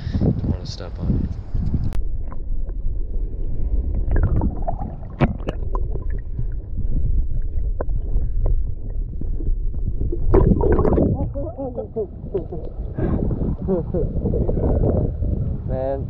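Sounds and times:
underwater rumble and slosh: 0.0 - 16.0.

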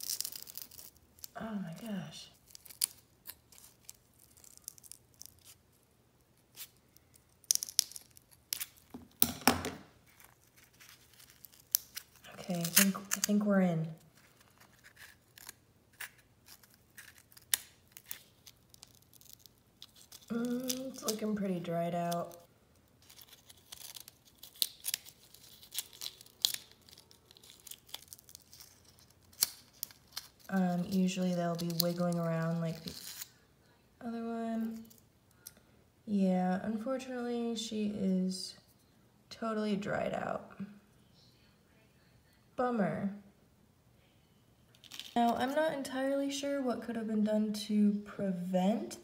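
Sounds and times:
cocoon crinkling and tearing: 0.0 - 9.4, 10.0 - 33.4, 34.6 - 35.6, 44.7 - 45.6.

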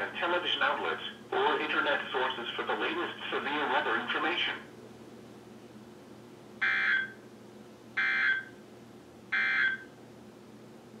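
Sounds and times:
data tone bursts: 8.0 - 8.5.

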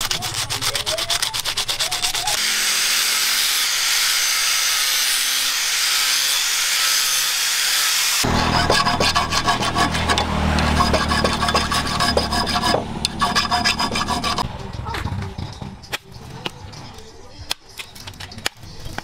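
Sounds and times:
abrasive rubbing on bamboo handle: 0.0 - 2.4, 8.2 - 14.5.

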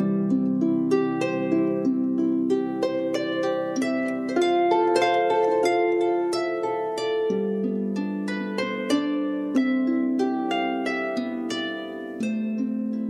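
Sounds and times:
calm plucked instrumental music: 0.0 - 13.0.

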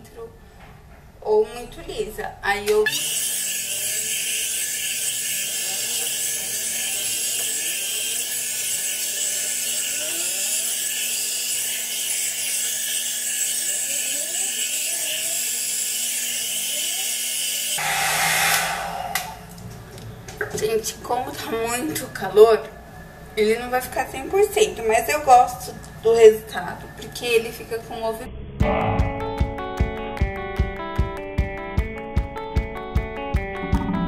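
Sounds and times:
hot-air brush fan whirring: 2.6 - 28.2.

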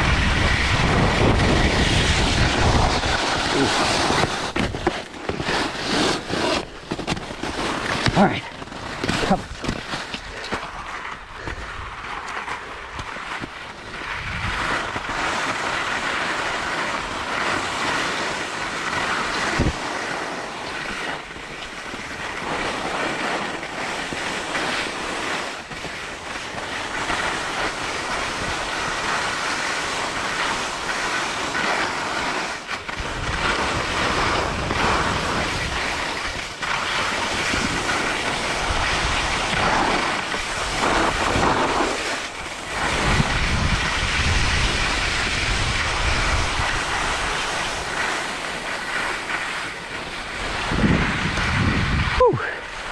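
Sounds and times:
wind buffeting microphone: 0.0 - 4.9, 14.1 - 15.0, 37.3 - 48.6, 50.2 - 52.9
skis scraping over snow: 0.0 - 52.9.

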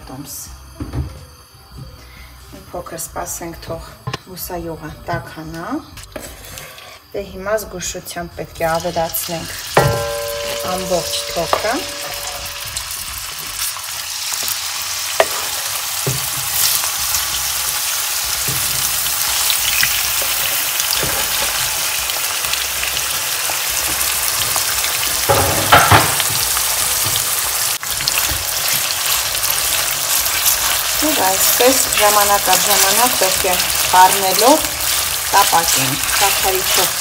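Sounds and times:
meat sizzling in hot oil: 7.7 - 37.0
utensil knocking against pan: 9.8 - 12.6, 25.3 - 26.2.

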